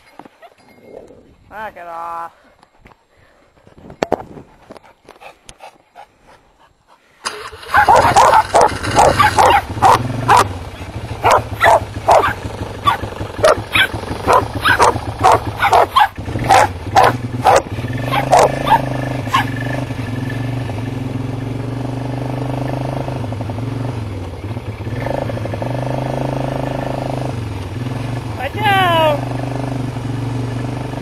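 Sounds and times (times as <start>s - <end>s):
dog barking: 7.6s - 19.6s.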